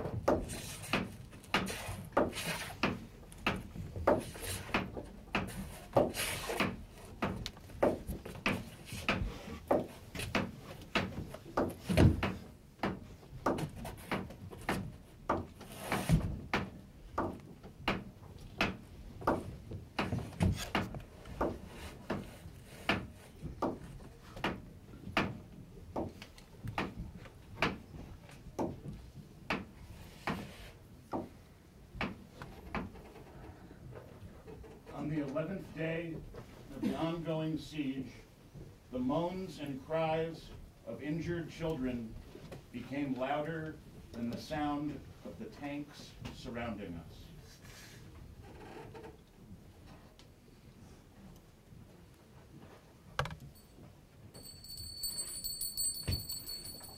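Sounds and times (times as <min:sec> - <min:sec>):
sharp wooden knocks: 0:00.0 - 0:27.9, 0:28.5 - 0:30.5, 0:31.1 - 0:31.4, 0:32.0 - 0:33.0.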